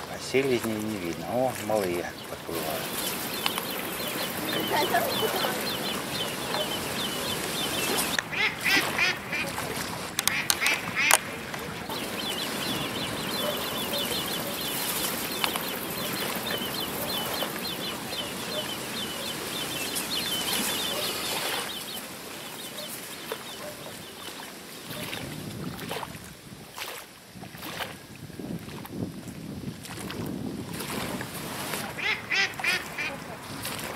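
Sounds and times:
steady background hiss: 0:00.0 - 0:23.4
soft low duck calls: 0:02.1 - 0:14.7, 0:31.8 - 0:33.5
high-pitched bird chirping: 0:02.9 - 0:08.2, 0:11.9 - 0:22.0.

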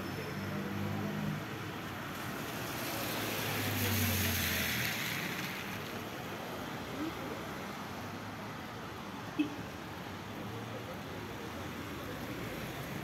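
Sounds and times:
tyres hissing on wet road: 0:00.2 - 0:13.0.

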